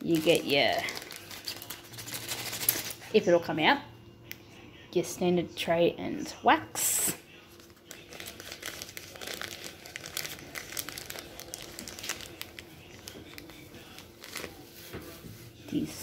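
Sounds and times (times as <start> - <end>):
plastic bag crinkling: 0.0 - 3.2, 7.5 - 15.2.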